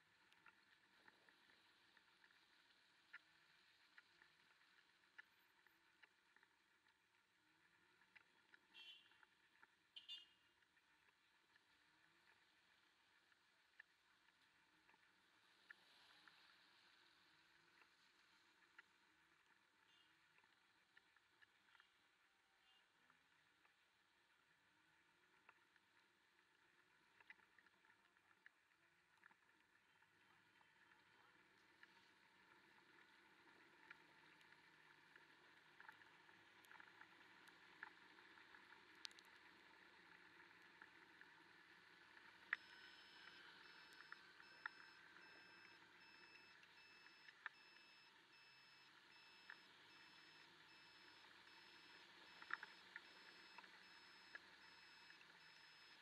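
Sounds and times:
light ticks: 0:30.2 - 0:56.0.

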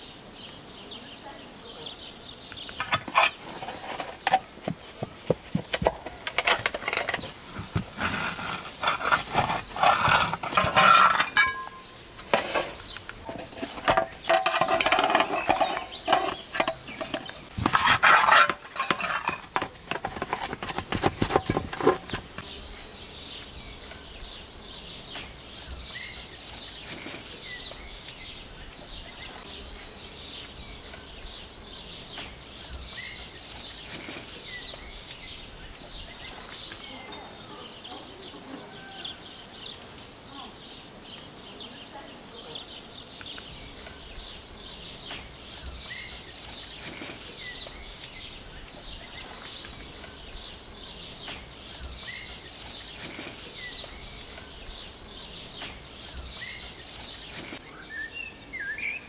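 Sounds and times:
plates and cutlery clinking: 0:08.8 - 0:22.4, 0:37.0 - 0:37.7.

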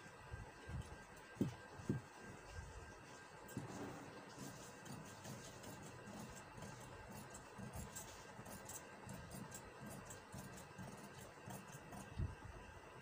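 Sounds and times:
scissors snipping fabric: 0:04.8 - 0:12.2.

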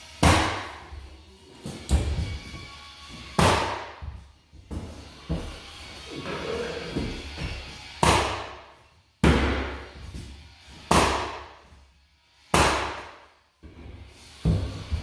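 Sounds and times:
flooring nailer bangs: 0:03.4 - 0:04.0, 0:12.5 - 0:13.2.

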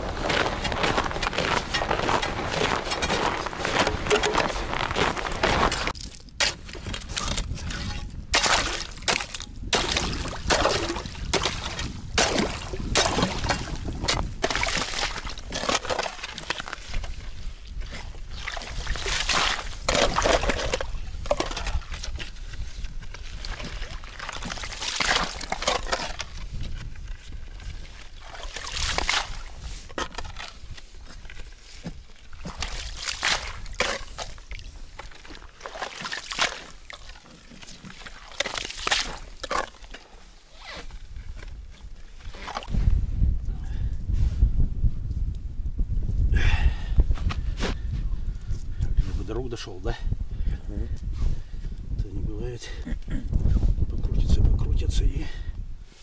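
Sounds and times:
sloshing ice chips and water: 0:00.0 - 0:26.9, 0:27.5 - 0:40.9, 0:42.2 - 0:42.8.

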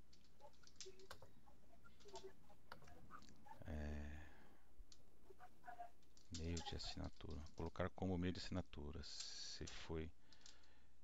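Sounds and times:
keyboard typing: 0:00.1 - 0:03.6, 0:06.0 - 0:07.9.

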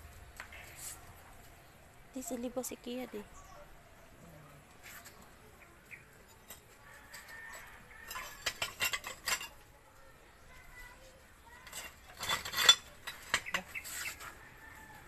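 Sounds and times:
ceramic tile pieces clinking: 0:06.4 - 0:09.6, 0:11.6 - 0:13.8.

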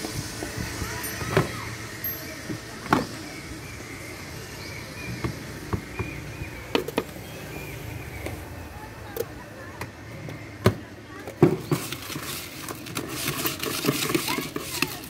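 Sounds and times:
street noise hum: 0:00.0 - 0:15.0
plastic tubs and lids clicking: 0:09.2 - 0:15.0
metal spoon scraping a tub: 0:11.6 - 0:15.0.

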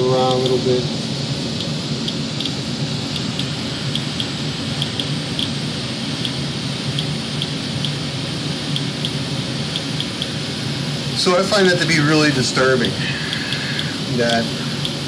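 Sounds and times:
steady rushing noise: 0:00.0 - 0:15.0
geiger counter clicking: 0:00.2 - 0:00.6, 0:01.6 - 0:05.6, 0:06.2 - 0:08.0, 0:08.7 - 0:10.3, 0:13.3 - 0:15.0.

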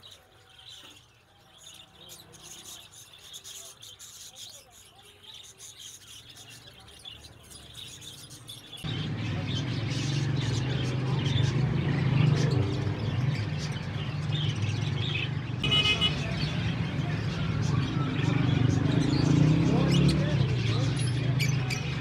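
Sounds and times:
lovebirds chirping: 0:00.0 - 0:22.0.

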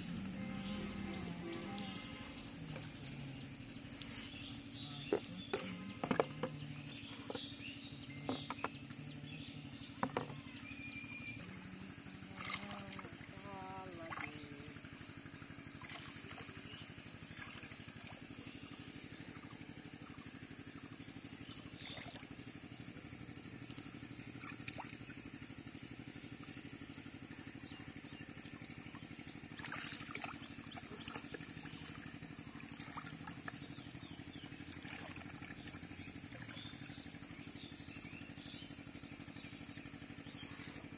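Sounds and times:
distant motor humming: 0:00.0 - 0:40.9
plastic bottles knocking: 0:05.1 - 0:06.6.

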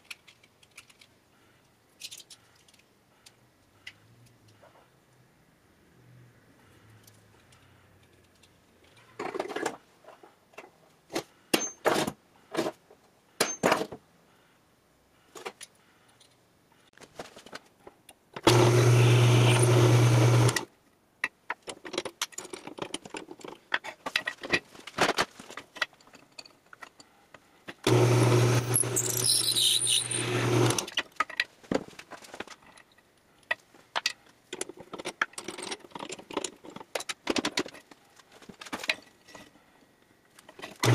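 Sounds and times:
drill press motor humming: 0:18.5 - 0:20.7, 0:27.8 - 0:30.9
metal tools clinking: 0:28.7 - 0:30.4.

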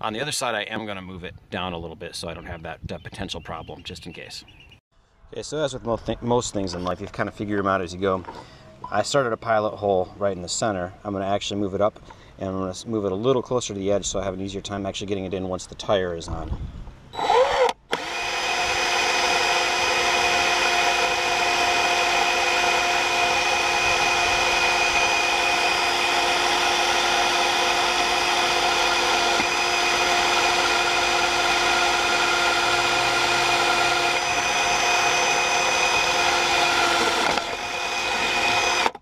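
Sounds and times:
cordless drill boring into metal: 0:17.2 - 0:39.0.

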